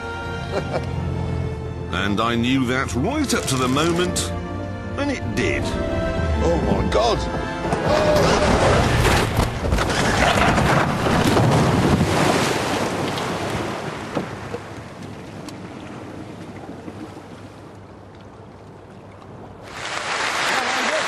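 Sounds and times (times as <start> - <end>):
water churning and splashing: 7.9 - 21.0.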